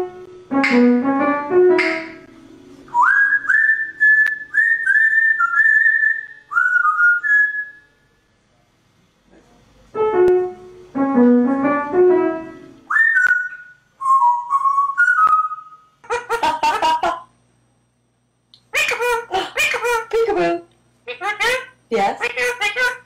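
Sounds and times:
parrot whistling a tune: 2.9s - 8.0s, 12.9s - 16.0s.

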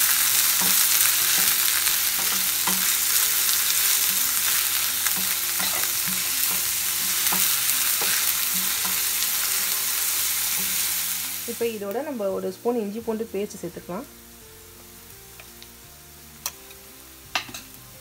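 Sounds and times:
onions sizzling in oil: 0.0s - 18.0s
wooden spoon scraping a pan: 0.5s - 11.0s.

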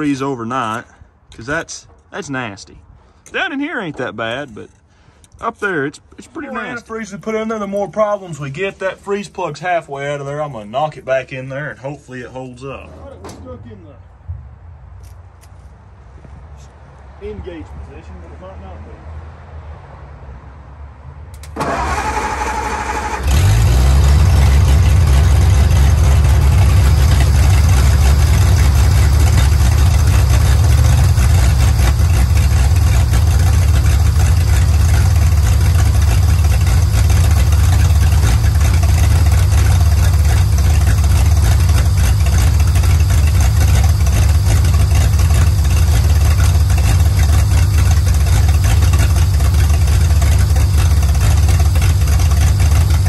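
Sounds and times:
truck engine running: 21.3s - 53.0s
starter motor cranking: 21.4s - 53.0s.

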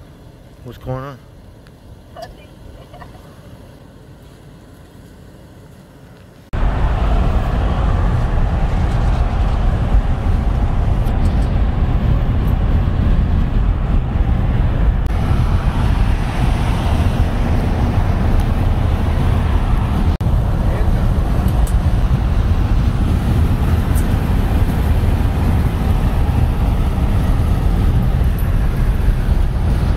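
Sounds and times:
faint outdoor ambience: 0.0s - 13.1s
road and wind noise in car: 0.0s - 29.9s.

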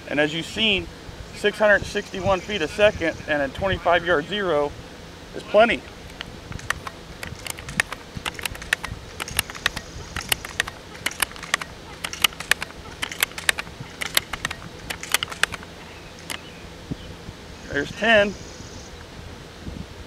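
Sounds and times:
air rifle pump lever clicking: 6.1s - 16.5s.

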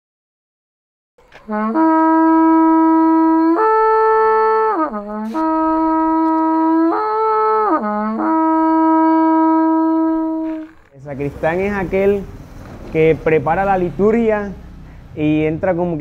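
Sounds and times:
long horn blown in held notes: 1.3s - 11.0s.

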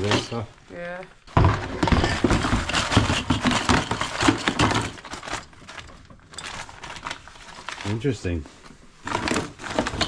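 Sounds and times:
small items clattering into plastic tub: 0.0s - 0.5s, 1.3s - 8.4s, 9.0s - 10.0s
dry bag crinkling: 3.8s - 10.0s.

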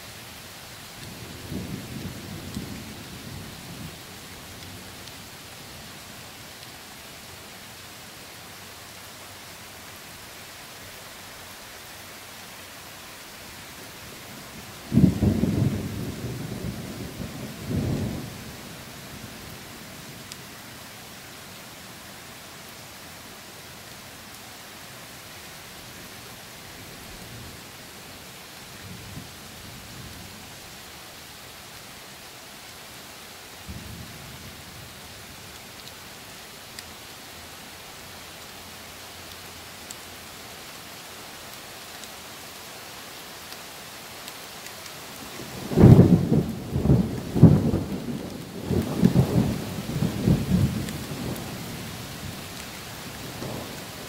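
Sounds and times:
rain hissing: 0.0s - 54.0s
thunder: 14.9s - 18.3s, 45.6s - 51.4s.

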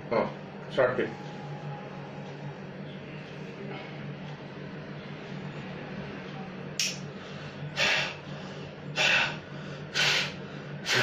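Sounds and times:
steady low hum: 0.0s - 11.0s
sharp puffs of breath: 7.2s - 11.0s.

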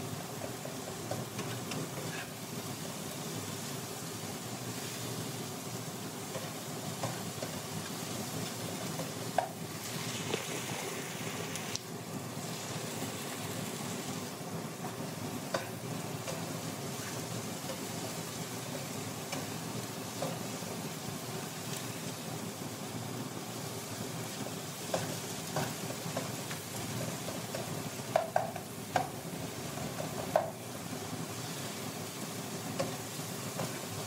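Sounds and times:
food sizzling in oil: 0.0s - 34.0s
spatula stirring and knocking pan: 0.1s - 3.4s, 6.0s - 9.9s, 14.4s - 22.0s, 24.2s - 34.0s.

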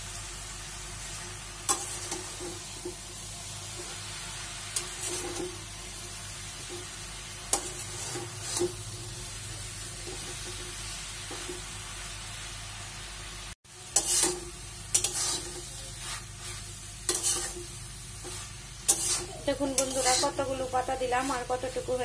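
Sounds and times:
vegetables sizzling in a pan: 0.0s - 22.0s
spatula scraping and knocking pan: 6.6s - 9.1s, 13.9s - 20.6s.

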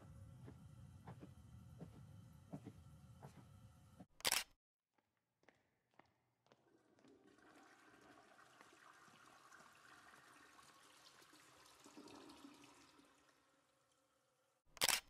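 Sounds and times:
trickling water: 6.6s - 14.5s.

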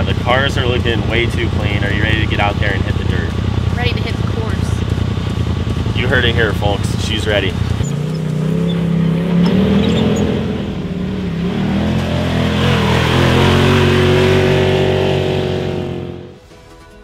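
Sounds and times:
off-road vehicle engines revving: 0.0s - 16.4s.

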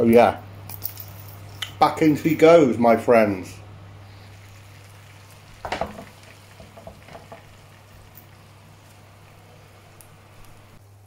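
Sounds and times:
steady low hum: 0.0s - 11.0s
fat sizzling and popping: 3.8s - 11.0s.

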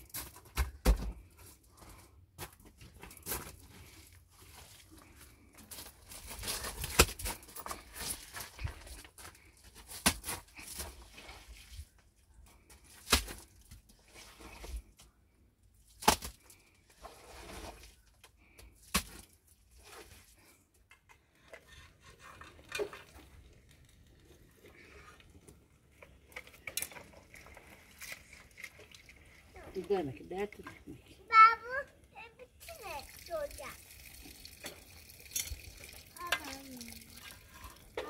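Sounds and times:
scraping on gravelly ground: 1.6s - 11.8s.

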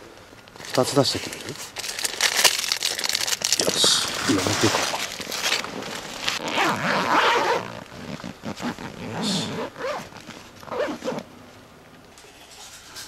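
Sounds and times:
zipper being pulled: 4.0s - 11.3s.

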